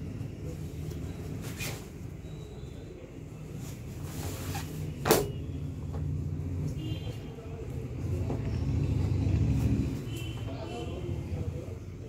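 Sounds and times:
jeans being folded: 0.6 - 2.2, 3.6 - 5.3.

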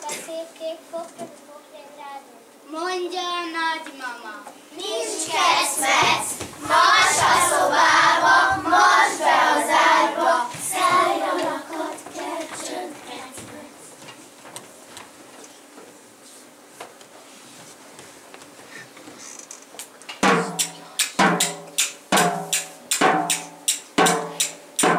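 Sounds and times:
children singing: 4.8 - 13.8.

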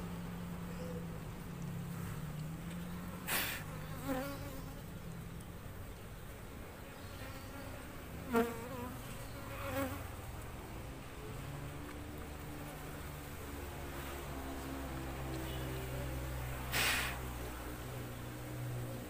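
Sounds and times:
bees buzzing: 2.8 - 5.0, 6.7 - 10.3.

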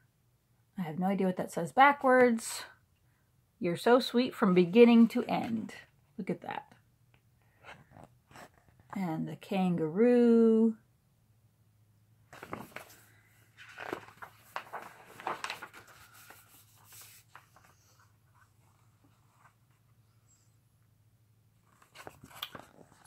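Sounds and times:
paper pages rustling: 12.3 - 19.8, 21.6 - 23.0.

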